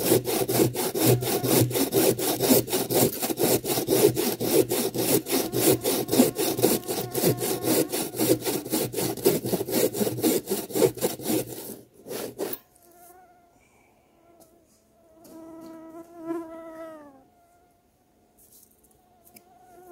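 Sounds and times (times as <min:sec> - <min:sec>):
hand saw cutting log: 0:00.0 - 0:12.7
fly buzzing: 0:05.3 - 0:07.9.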